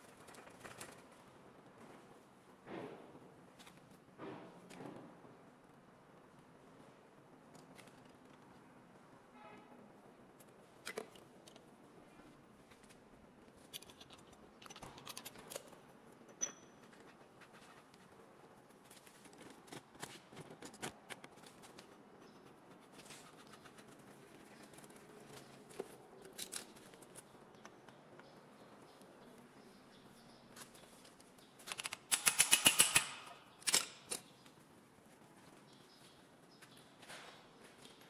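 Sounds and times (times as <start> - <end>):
light clicks taps and scrapes: 12.7 - 18.2.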